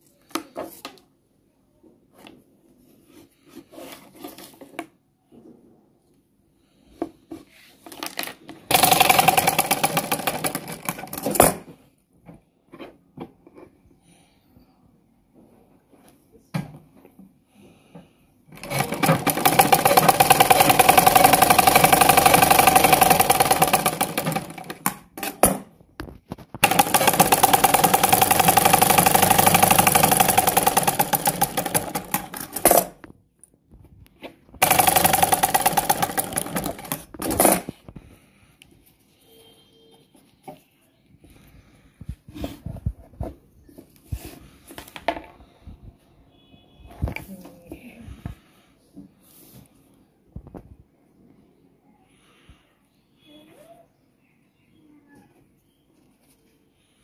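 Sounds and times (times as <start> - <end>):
sewing machine stitching: 8.7 - 11.6, 18.5 - 25.6, 26.6 - 33.0, 34.6 - 37.7.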